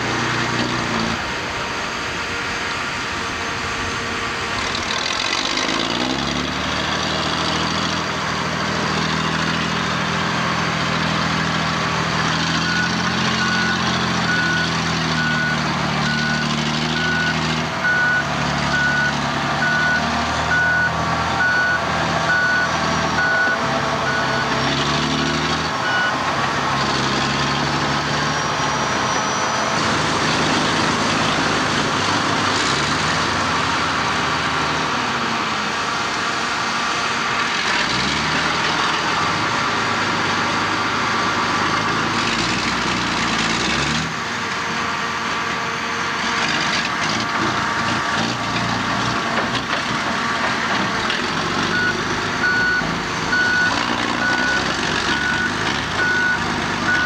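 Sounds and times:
diesel truck engine revving: 0:00.0 - 0:57.0
reversing alarm beeping: 0:12.4 - 0:24.7, 0:25.8 - 0:26.2, 0:51.7 - 0:57.0.

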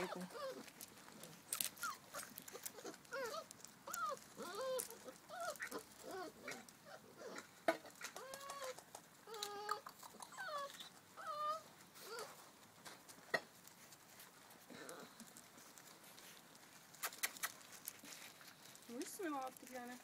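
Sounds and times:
puppies whining and yelping: 0:00.0 - 0:12.6.

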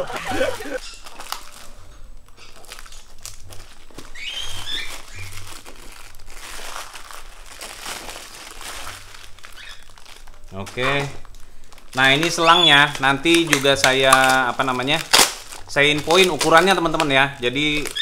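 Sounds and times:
plastic wrapping crinkling: 0:00.0 - 0:18.0.

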